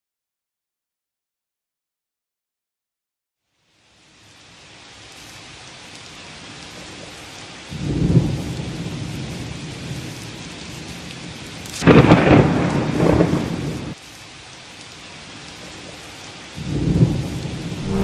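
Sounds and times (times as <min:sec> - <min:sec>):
steady rain: 0:03.4 - 0:18.0
thunder rumbling and cracking: 0:07.7 - 0:14.0, 0:16.6 - 0:18.0.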